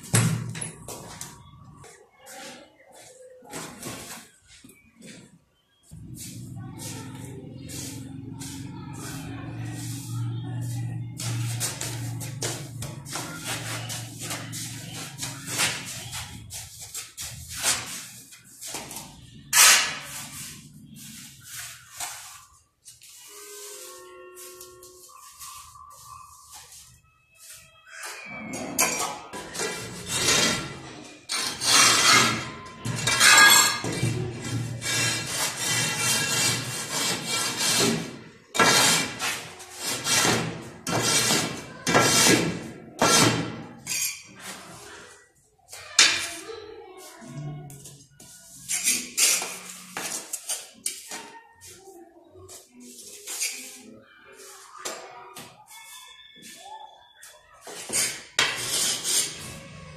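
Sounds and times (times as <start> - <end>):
hoe scraping wet mortar: 29.6 - 33.7, 34.5 - 43.6, 57.7 - 59.6
trowel scraping mortar: 29.6 - 33.7, 34.4 - 44.6, 57.7 - 59.6.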